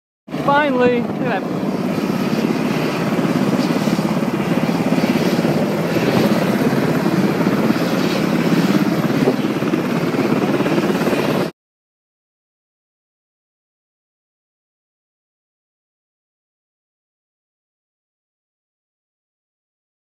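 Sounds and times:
aircraft noise with chopping flutter: 0:00.3 - 0:11.6.

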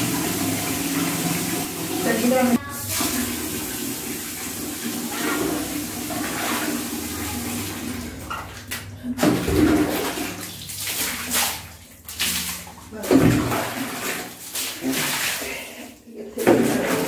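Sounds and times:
running water rushing: 0:00.0 - 0:08.6.

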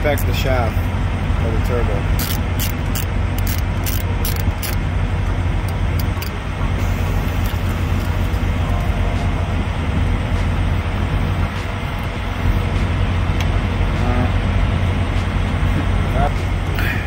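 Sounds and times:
low vehicle rumble: 0:00.0 - 0:17.0
ratchet clicking: 0:02.2 - 0:04.8, 0:05.6 - 0:06.4.

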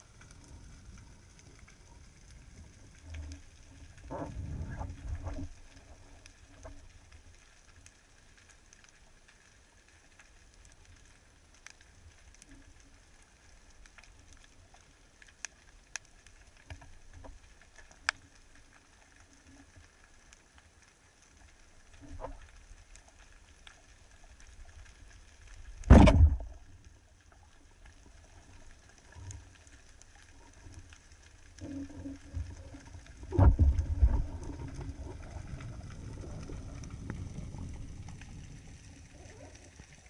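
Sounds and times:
quiet underwater hiss: 0:00.0 - 0:40.0
sharp underwater clicks and crackles: 0:00.0 - 0:40.0
low rumbling burst of water: 0:25.8 - 0:26.8.

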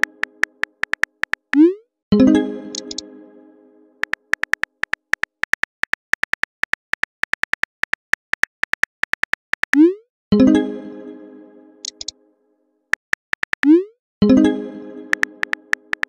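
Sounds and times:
phone keyboard typing clicks: 0:00.0 - 0:01.6, 0:02.7 - 0:03.0, 0:04.0 - 0:09.8, 0:11.8 - 0:12.1, 0:13.0 - 0:13.8, 0:15.1 - 0:16.0
bright synth chord: 0:02.2 - 0:04.0, 0:10.4 - 0:11.9.

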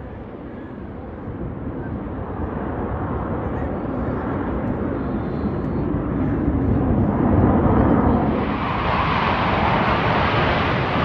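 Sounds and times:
jet engines roaring: 0:05.7 - 0:11.0.

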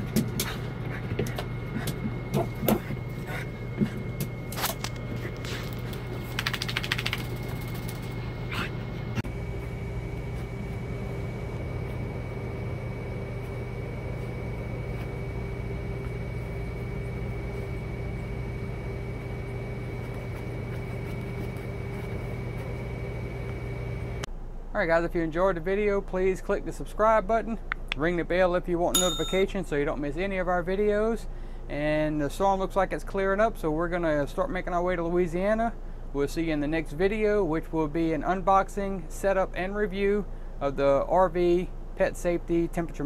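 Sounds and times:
steady hum with high whine: 0:00.0 - 0:43.0
dog claws clicking on floor: 0:05.8 - 0:08.0.

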